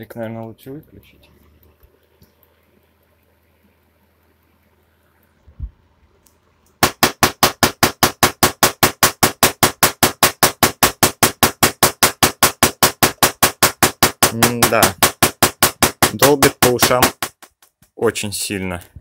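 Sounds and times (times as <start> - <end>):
tesla coil spark cracks: 6.7 - 17.9.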